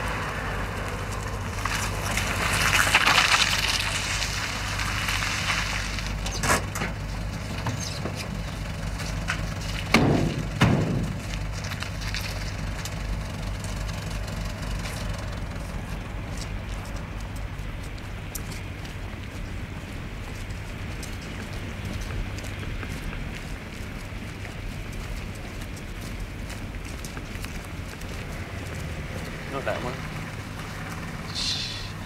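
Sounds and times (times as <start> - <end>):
van engine and tyres: 0.0 - 32.0
steady low hum: 5.8 - 32.0
van doors slamming: 9.8 - 11.3.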